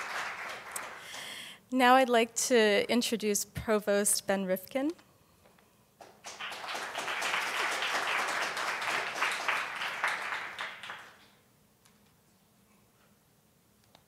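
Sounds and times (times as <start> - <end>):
audience applauding: 0.0 - 1.3, 6.0 - 11.4.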